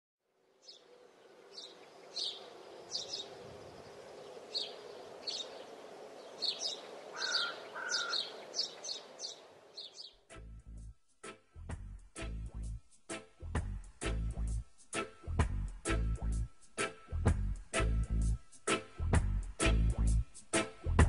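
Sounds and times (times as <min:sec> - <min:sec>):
birds chirping: 0:00.6 - 0:10.4
music: 0:10.3 - 0:21.0.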